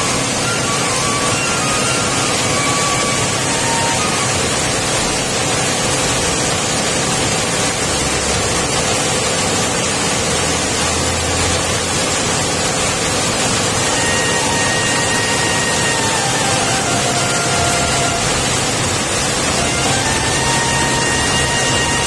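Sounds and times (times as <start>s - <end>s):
coffee grinder whirring: 13.8s - 22.0s.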